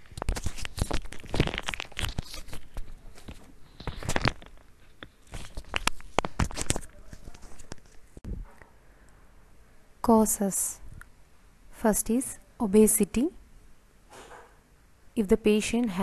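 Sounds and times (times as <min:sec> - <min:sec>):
crackling and crinkling: 0:00.0 - 0:08.7.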